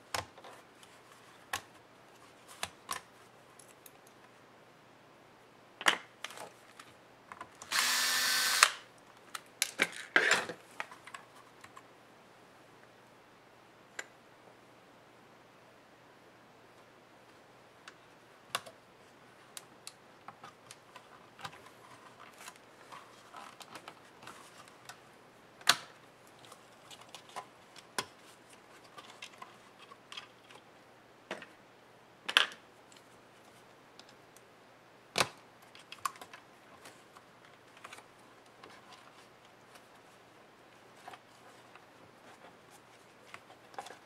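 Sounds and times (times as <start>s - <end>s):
screwdriver on laptop: 7.6s - 8.8s.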